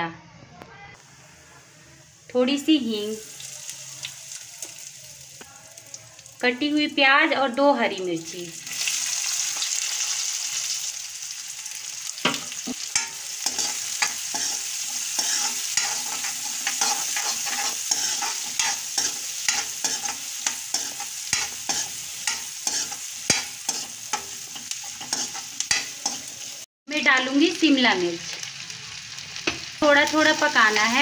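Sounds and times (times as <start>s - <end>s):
onions sizzling in hot oil: 1.0s - 31.0s
metal spatula scraping a pan: 12.6s - 26.6s.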